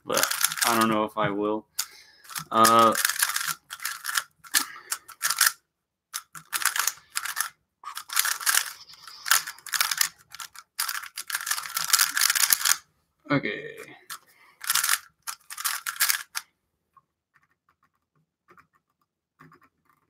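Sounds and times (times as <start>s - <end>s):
puzzle cube clicking: 0.1s - 1.0s, 1.7s - 12.8s, 14.1s - 16.4s.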